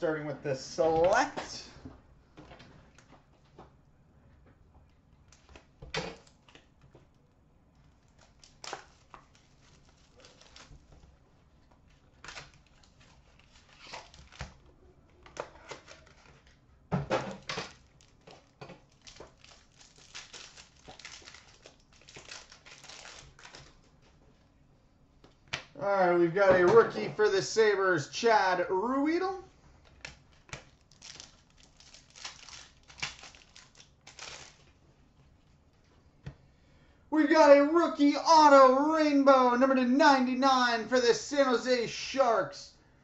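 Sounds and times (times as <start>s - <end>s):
pack wrappers crinkling and tearing: 7.9s - 11.0s, 11.9s - 16.6s, 17.4s - 24.0s, 29.9s - 34.8s.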